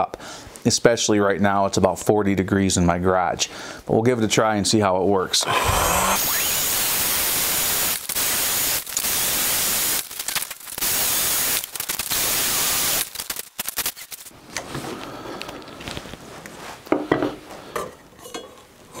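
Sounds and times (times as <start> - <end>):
heat gun blowing air: 5.4 - 13.4.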